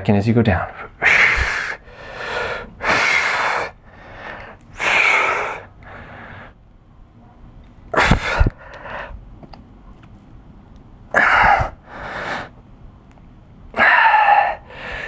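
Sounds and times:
man breathing forcefully: 0.7s - 6.6s, 7.9s - 9.3s, 11.1s - 12.6s, 13.7s - 15.0s.

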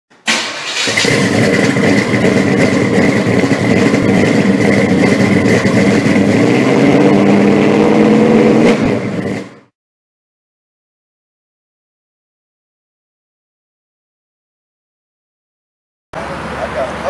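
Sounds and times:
car engine running: 0.4s - 9.7s.

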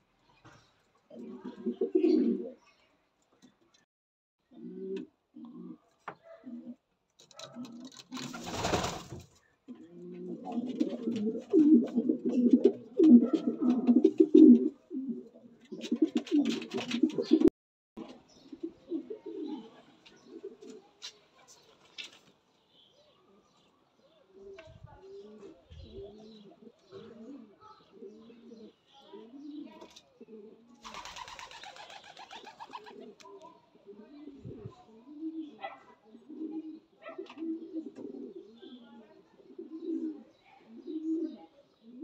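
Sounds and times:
pigeons cooing: 1.1s - 2.6s, 4.4s - 6.8s, 9.7s - 20.9s, 24.3s - 42.0s.

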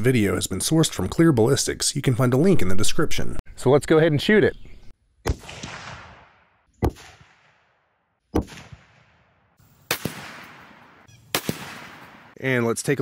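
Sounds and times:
rifle shots with echo: 5.3s - 7.8s, 8.4s - 12.4s.

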